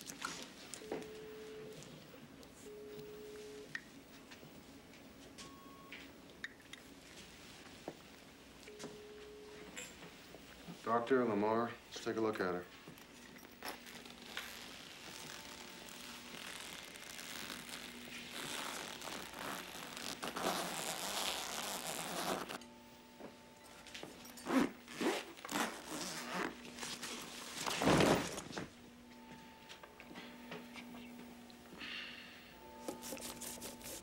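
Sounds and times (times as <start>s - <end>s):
plastic bag rustling: 13.6s - 22.6s, 24.4s - 28.7s
zipper rasping: 13.6s - 22.6s, 24.4s - 26.6s.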